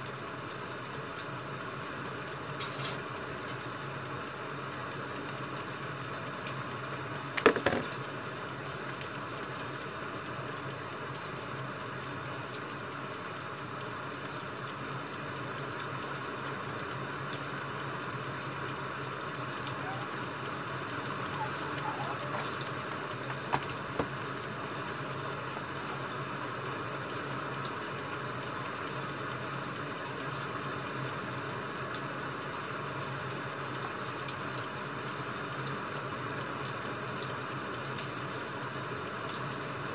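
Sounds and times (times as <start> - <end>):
rain hiss: 0.0 - 39.9
books knocking on desk: 7.4 - 7.9, 23.2 - 24.2.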